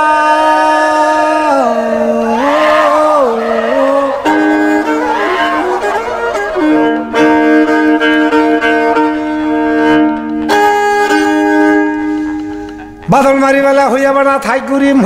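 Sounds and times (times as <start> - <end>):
person singing: 0.0 - 7.3
bowed violin: 2.0 - 13.1.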